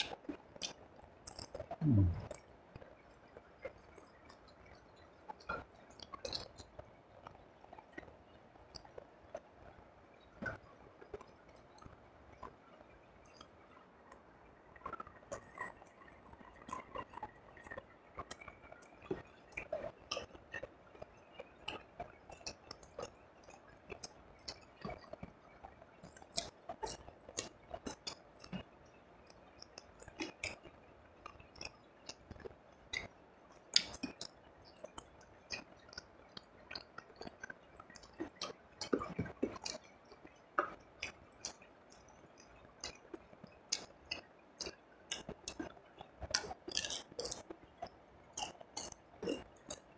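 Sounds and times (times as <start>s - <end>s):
wet chewing mouth clicks: 0.0s - 2.4s, 5.4s - 8.0s, 26.0s - 28.7s, 29.6s - 49.9s.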